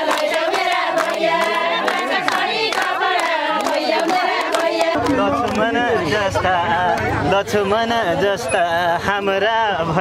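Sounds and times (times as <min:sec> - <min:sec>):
women singing folk song: 0:00.0 - 0:05.0
hand clapping: 0:00.0 - 0:05.7.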